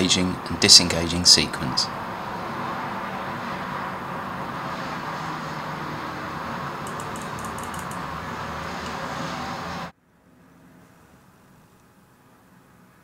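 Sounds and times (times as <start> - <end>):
ratchet clicking: 6.8 - 8.1.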